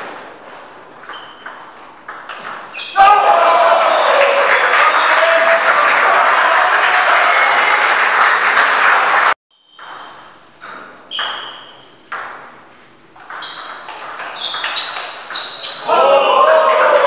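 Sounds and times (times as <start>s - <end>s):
table tennis ball bouncing: 0.0s - 3.0s, 9.6s - 15.9s
crowd applause: 3.0s - 9.4s, 15.9s - 17.0s.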